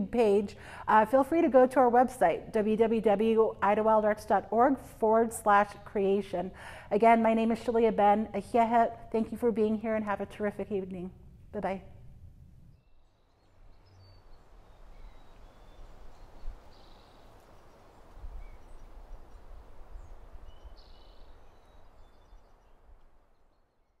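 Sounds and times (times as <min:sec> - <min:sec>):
low wind rumble: 0:00.0 - 0:23.4.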